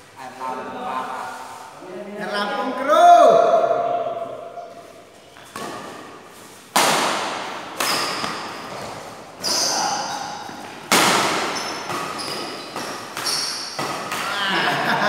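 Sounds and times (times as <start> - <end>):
badminton racket hitting shuttlecock: 4.7 - 14.4.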